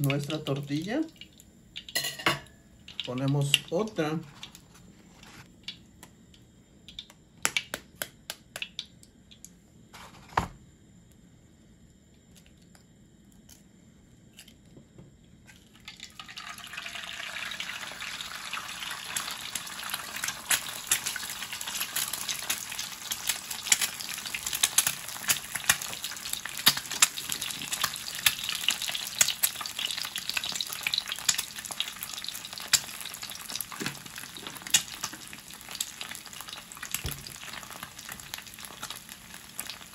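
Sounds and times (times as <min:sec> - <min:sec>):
egg sizzling in oil: 0:15.6 - 0:39.9.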